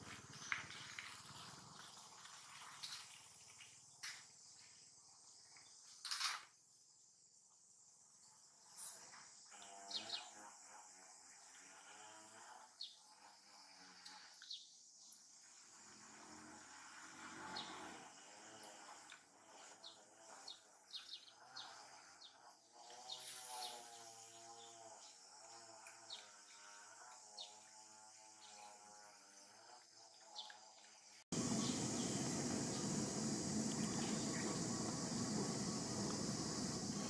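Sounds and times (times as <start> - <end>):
steady background hiss: 31.4 - 37.0.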